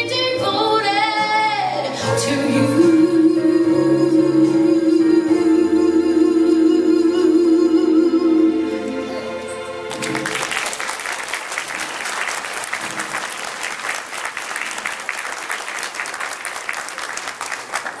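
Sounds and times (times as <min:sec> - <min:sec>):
crowd applauding: 0:09.9 - 0:18.0.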